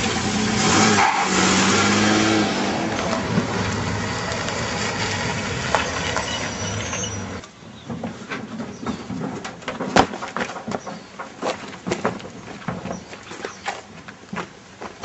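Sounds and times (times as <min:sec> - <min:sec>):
pickup truck engine running: 0:00.0 - 0:07.4.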